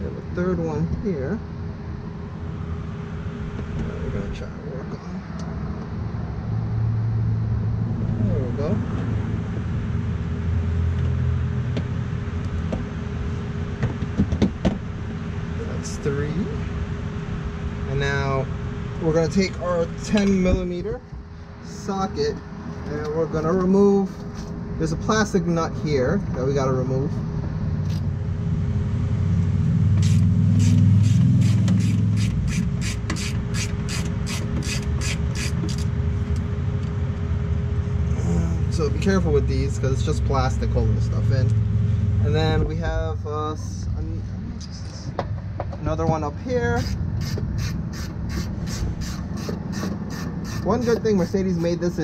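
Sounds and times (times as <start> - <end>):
steady low hum: 0.0 - 52.0
steady low rumble: 0.0 - 52.0
ratchet clicking: 30.0 - 35.9, 46.8 - 51.7.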